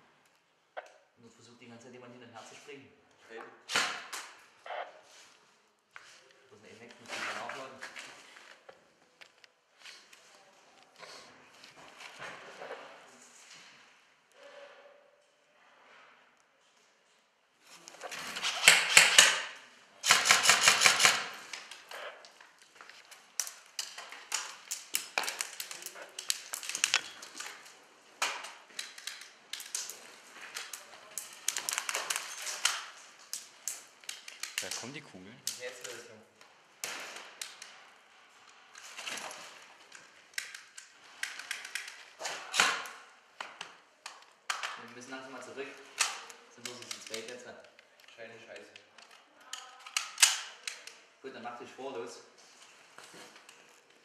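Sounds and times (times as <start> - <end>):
airsoft rifle full-auto rattle: 18.6 - 21.7
airsoft gun clicks and snaps: 28.2 - 29.9, 48.5 - 51.0.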